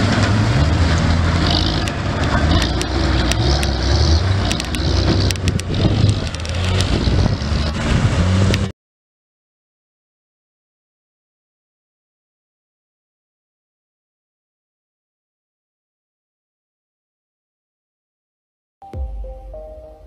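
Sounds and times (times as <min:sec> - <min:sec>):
truck engine revving: 0:00.0 - 0:08.7.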